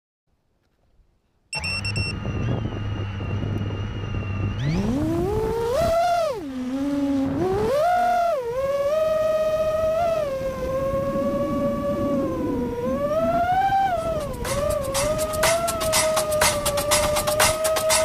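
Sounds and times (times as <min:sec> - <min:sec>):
short high beeps: 0:01.5 - 0:02.2
drone motors whining: 0:01.6 - 0:18.0.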